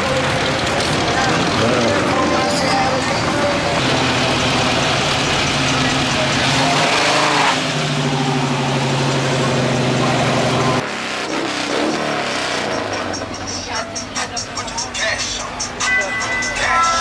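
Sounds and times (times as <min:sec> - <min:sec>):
background voices: 0:00.0 - 0:07.0, 0:12.9 - 0:17.0
car engine running: 0:00.0 - 0:15.9.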